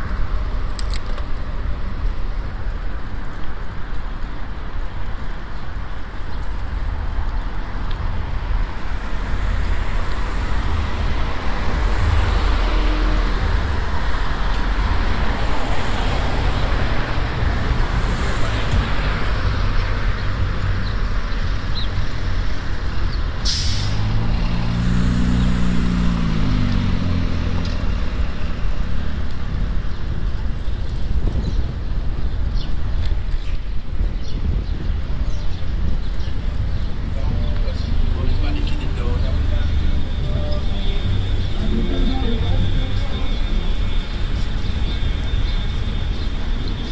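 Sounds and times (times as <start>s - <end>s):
passing cars: 0.0s - 46.9s
brief sharp hiss: 23.4s - 24.0s.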